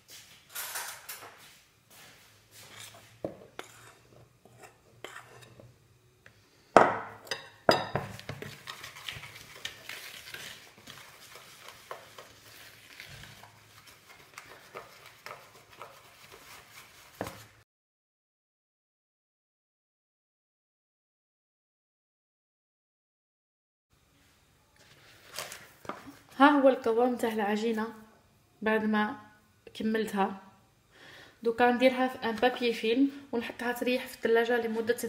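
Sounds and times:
whisk scraping in plastic bowl: 0:02.6 - 0:05.6, 0:08.2 - 0:17.6.

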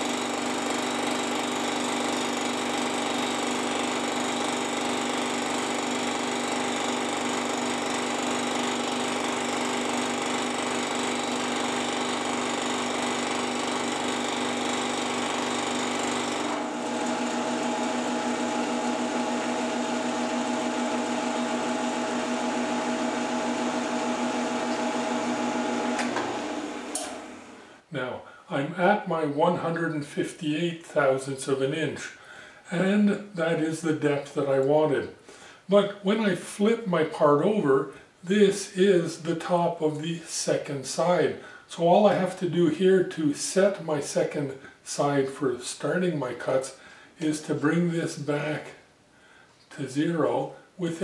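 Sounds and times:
milling machine cutting metal: 0:00.0 - 0:27.6.

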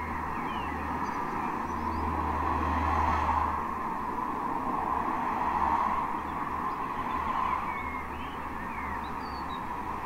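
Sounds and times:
faint bird chirps: 0:06.7 - 0:09.7.

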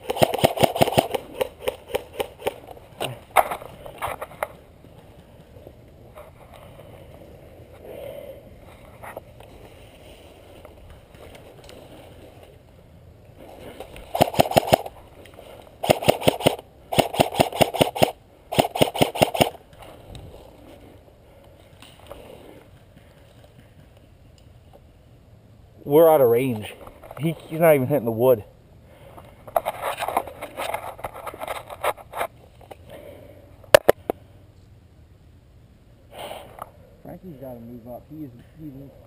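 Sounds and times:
airsoft rifle bursts: 0:00.0 - 0:02.6, 0:14.1 - 0:15.0, 0:15.8 - 0:19.6.

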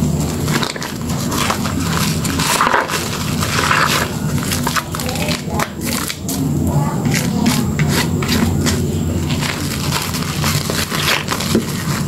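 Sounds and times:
squelching soap lather and sponge: 0:07.0 - 0:12.0.

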